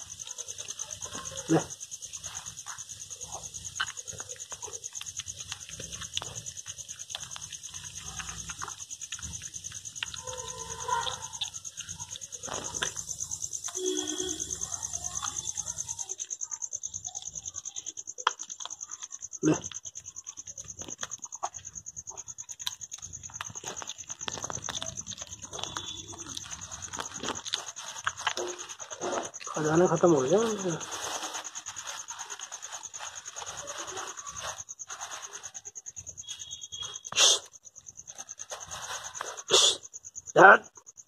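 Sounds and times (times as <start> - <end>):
cats chewing food: 0.0 - 29.8
crickets chirping: 0.0 - 41.0.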